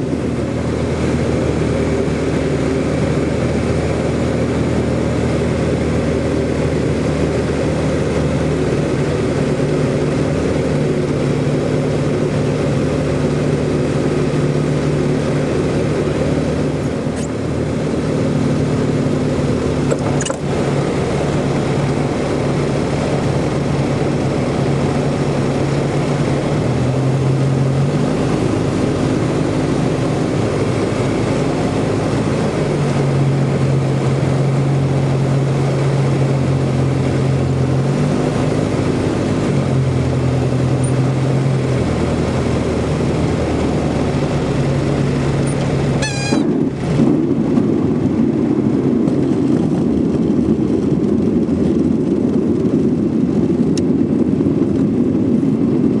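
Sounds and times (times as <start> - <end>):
light aircraft engine and propeller: 0.0 - 56.0
wheels rumbling on dirt: 0.0 - 56.0.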